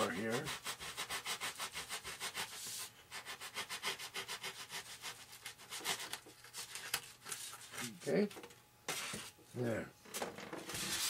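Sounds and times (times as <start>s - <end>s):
hand tool scraping foam: 0.0s - 6.2s.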